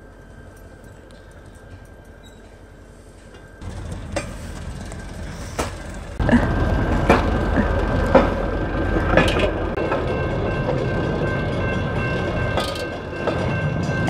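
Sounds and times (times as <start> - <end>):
steel wheels rolling on rails: 0.0 - 14.0
wheels clicking over rail joints: 3.3 - 14.0.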